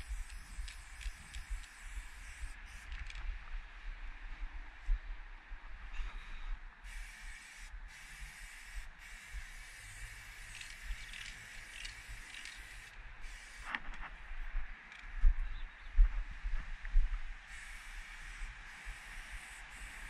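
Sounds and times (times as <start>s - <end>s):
spray paint can hissing: 0.0s - 3.2s, 6.8s - 13.8s, 17.5s - 20.0s.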